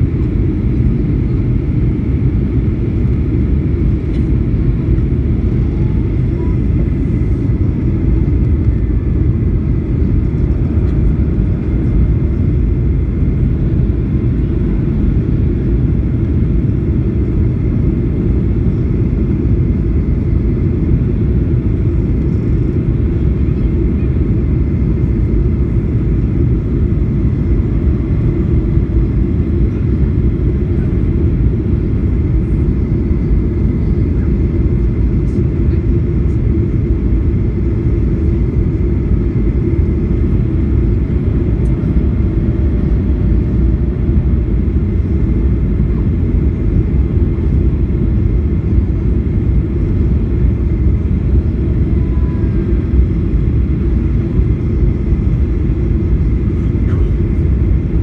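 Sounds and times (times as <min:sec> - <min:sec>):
airplane cabin engine rumble: 0:00.0 - 0:58.0
faint high whine: 0:51.4 - 0:53.2.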